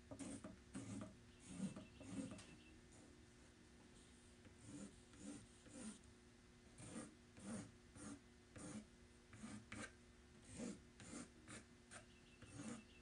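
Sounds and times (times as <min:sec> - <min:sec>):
paint brush strokes on panel: 0:00.2 - 0:03.0, 0:09.4 - 0:13.0.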